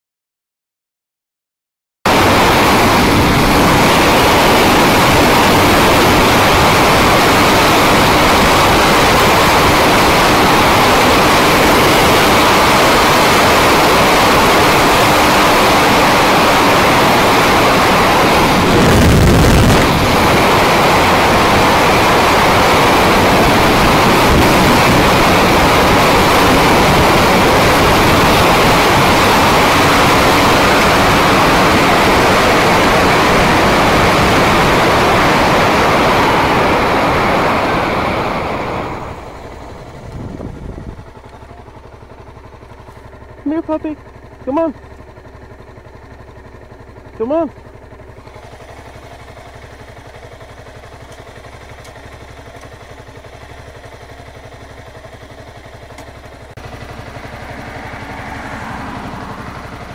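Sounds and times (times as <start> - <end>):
wind rushing over microphone: 2.1 - 41.2
motorcycle engine running: 2.1 - 59.9.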